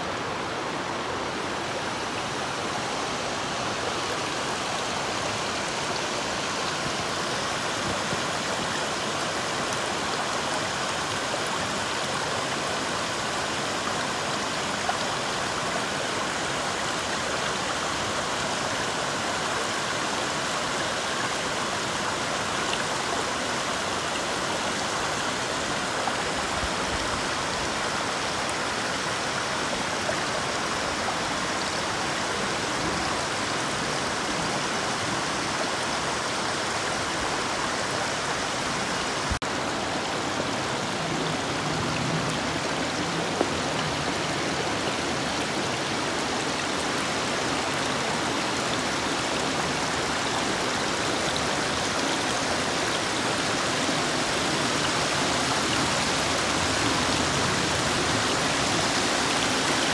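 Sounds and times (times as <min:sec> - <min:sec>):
stream running over pebbles: 0:00.0 - 0:59.9.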